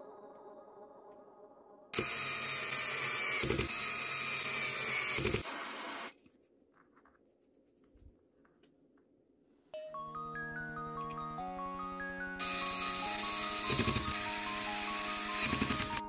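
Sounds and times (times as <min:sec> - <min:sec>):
handheld power tool running: 0:02.0 - 0:06.2, 0:12.4 - 0:16.0.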